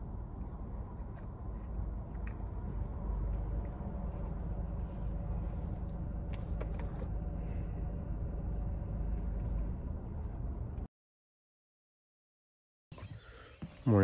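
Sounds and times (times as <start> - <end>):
car idling: 0.0 - 10.9.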